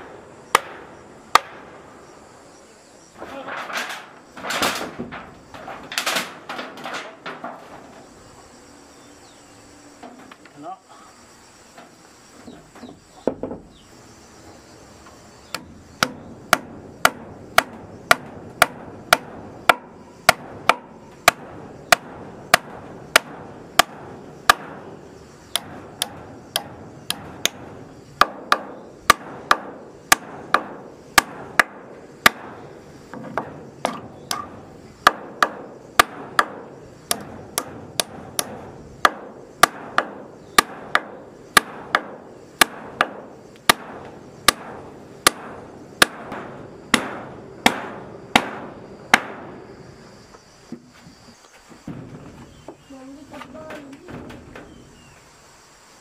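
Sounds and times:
hammer hitting nail into wood: 16.0 - 24.8, 33.3 - 49.4.

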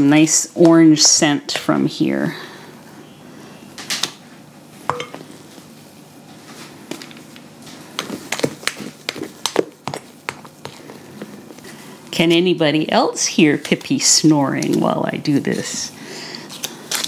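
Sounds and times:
spatula tapping bowl and pan: 4.9 - 5.2.

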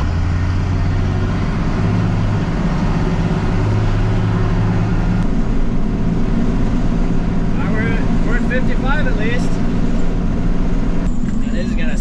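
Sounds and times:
truck engine drone from inside cab: 0.0 - 12.0.

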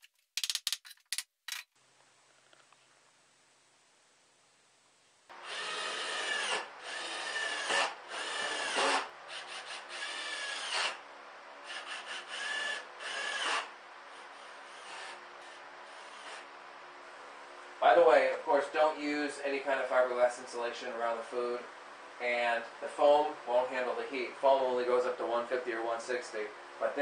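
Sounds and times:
cordless drill motor whining: 5.3 - 11.0, 11.7 - 16.5.

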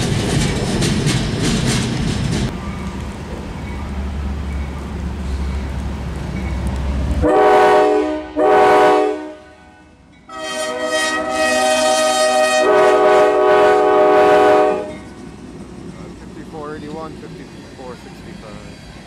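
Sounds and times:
train rumbling: 0.0 - 19.0
locomotive air horn blasts: 7.2 - 15.1.

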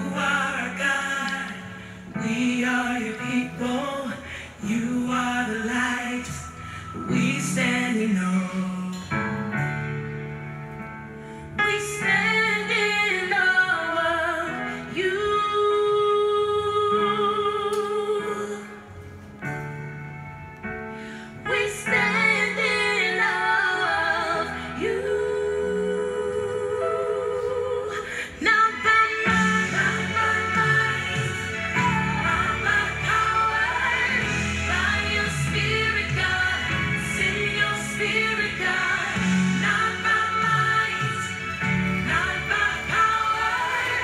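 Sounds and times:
song with wavering vocals: 0.0 - 9.9, 21.2 - 44.0.

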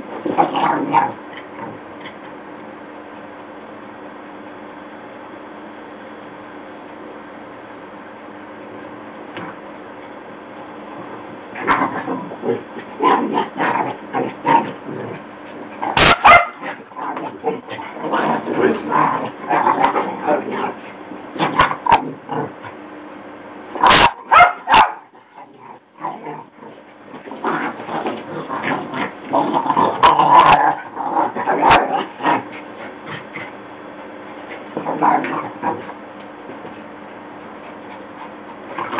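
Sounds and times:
dogs growling: 0.1 - 1.8, 11.6 - 22.8, 25.2 - 33.6, 34.3 - 36.0, 37.7 - 38.9
dogs barking: 15.9 - 16.9, 23.8 - 25.1.

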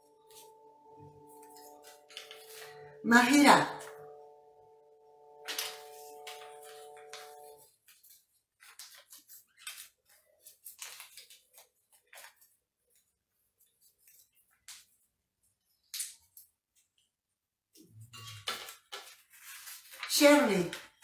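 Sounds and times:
paper crinkling and rustling: 0.2 - 3.0, 5.4 - 15.1, 18.2 - 21.0.

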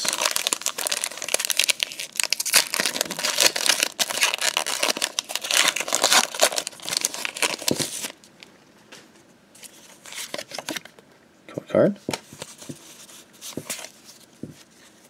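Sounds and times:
foil wrapper crinkling and tearing: 0.0 - 8.2.

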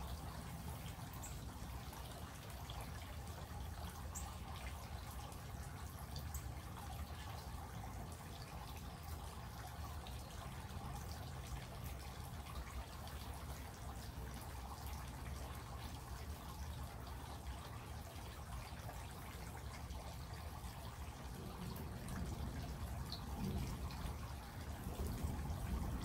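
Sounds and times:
water drips and taps: 0.0 - 26.0
heavy rain falling: 20.8 - 26.0.

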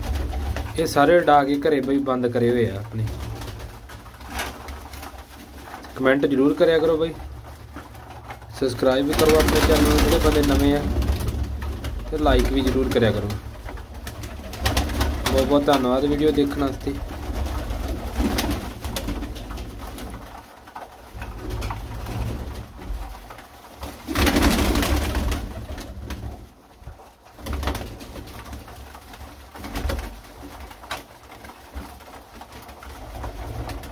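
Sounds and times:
wings flapping: 0.0 - 33.9.

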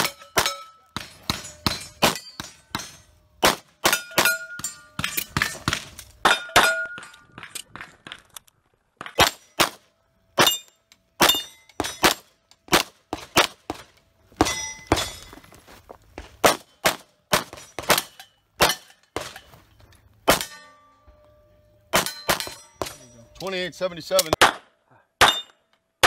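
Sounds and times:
steel targets ringing: 0.0 - 7.3, 10.4 - 12.4, 14.4 - 15.6, 20.3 - 24.4, 25.2 - 25.6.

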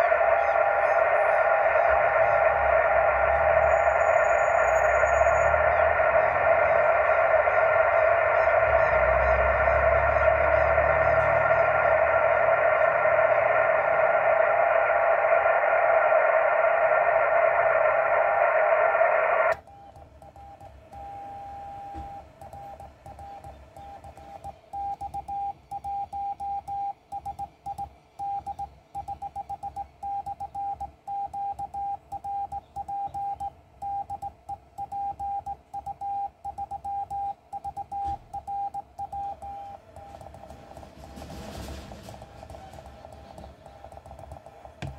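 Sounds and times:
morse code beeps: 0.0 - 14.7, 19.7 - 41.2
radio static hiss: 0.0 - 20.1, 39.3 - 44.9.

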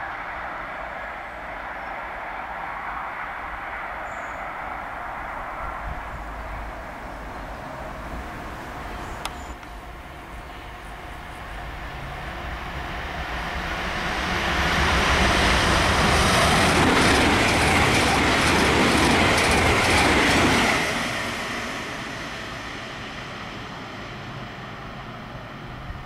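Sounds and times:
train wheels clicking over rail joints: 16.4 - 20.9.

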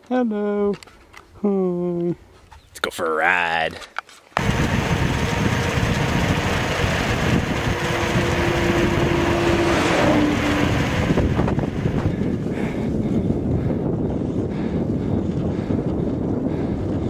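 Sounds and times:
wind rushing over microphone: 4.4 - 17.0
car passing by: 8.2 - 11.5.

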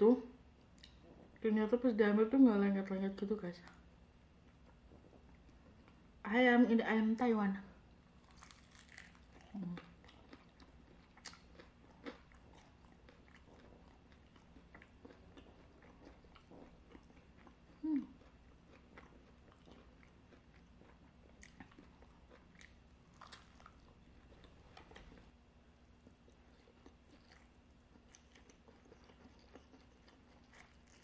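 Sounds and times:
chewing fried chicken: 8.2 - 25.3, 25.9 - 31.0.

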